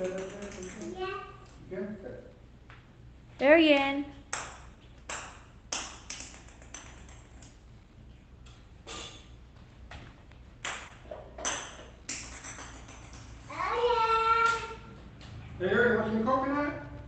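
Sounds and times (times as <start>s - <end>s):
hard objects tapping with ringing ping: 11.4s - 13.2s.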